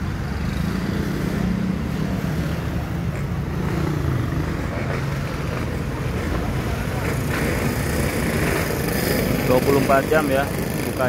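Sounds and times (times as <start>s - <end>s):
street traffic noise: 0.0s - 11.0s.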